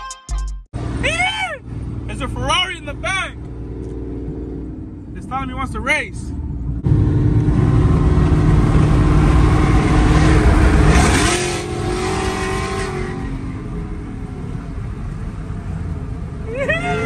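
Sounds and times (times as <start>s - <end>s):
truck exhaust accelerating hard: 6.2s - 17.0s.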